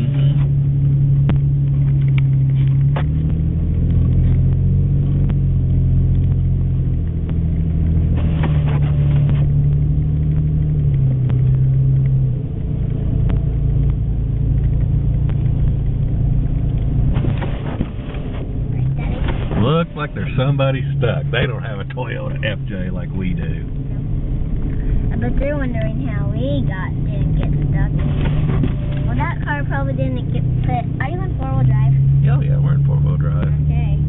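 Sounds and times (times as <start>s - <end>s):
car engine droning inside cabin: 0.0s - 34.0s.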